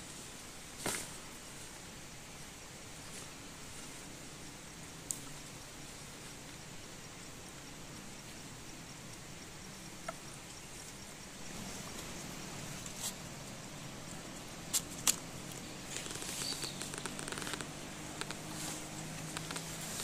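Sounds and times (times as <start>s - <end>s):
forest background hiss: 0.0s - 20.0s
strap and fabric rustling: 15.9s - 20.0s.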